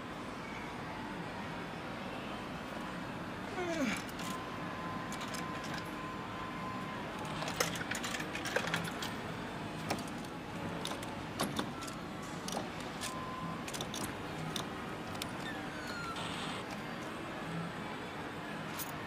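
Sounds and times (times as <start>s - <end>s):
metal tokens clinking: 7.3s - 9.2s, 9.9s - 15.4s.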